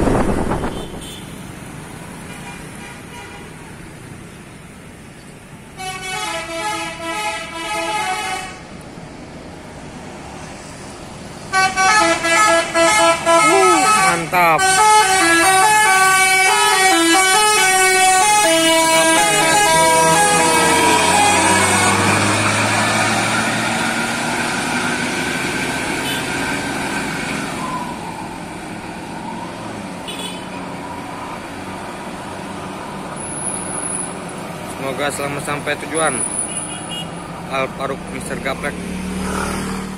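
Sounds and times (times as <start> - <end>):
musical air horn playing a tune: 5.8 - 8.6, 11.5 - 22.6
bus engine running: 11.0 - 27.6
motorcycles passing: 15.2 - 39.9.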